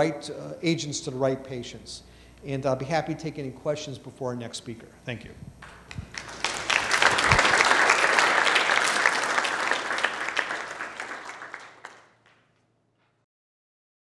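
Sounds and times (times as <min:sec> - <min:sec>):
audience applauding: 0:05.6 - 0:12.4.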